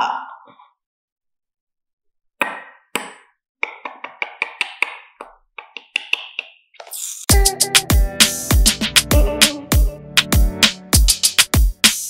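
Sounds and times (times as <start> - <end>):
music beat: 5.8 - 12.0.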